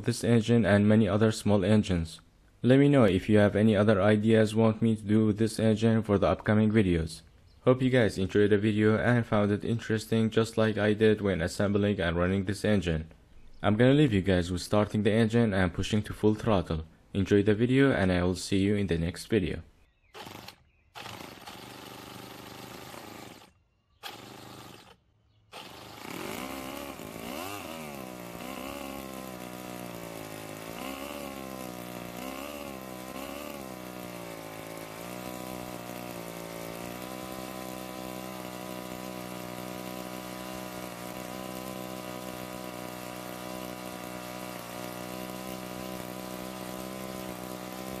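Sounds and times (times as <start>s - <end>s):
model engine running: 20.2s - 48.0s.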